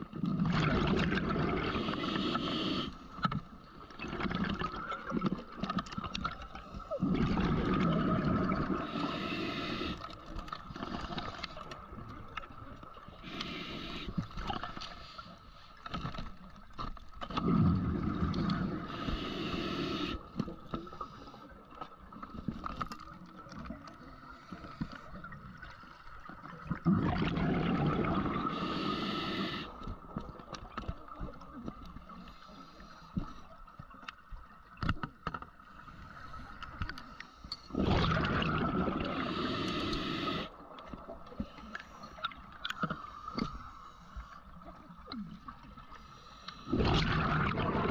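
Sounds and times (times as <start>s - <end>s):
scuba regulator bubbling exhalations: 0.2s - 2.9s, 6.8s - 10.1s, 17.3s - 20.3s, 26.6s - 29.8s, 37.7s - 40.6s, 46.7s - 47.9s.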